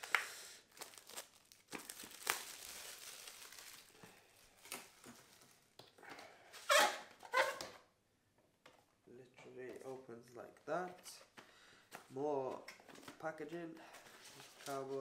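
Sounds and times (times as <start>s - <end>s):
plastic wrap crinkling and tearing: 0.0s - 5.8s.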